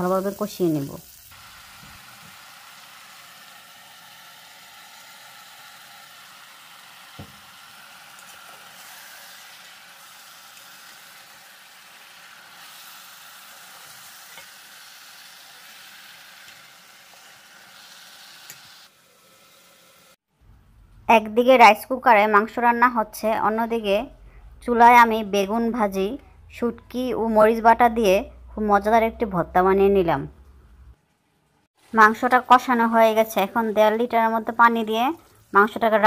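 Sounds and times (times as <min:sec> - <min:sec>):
meat sizzling in pot: 0:00.0 - 0:20.2, 0:31.8 - 0:36.0.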